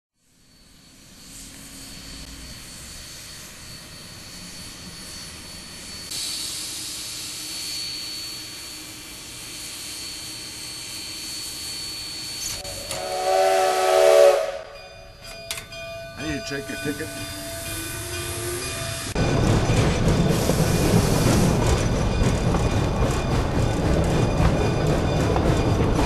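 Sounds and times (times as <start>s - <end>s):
steam locomotive hissing: 0.2s - 26.0s
steam whistle blowing: 11.7s - 14.9s, 17.3s - 19.2s.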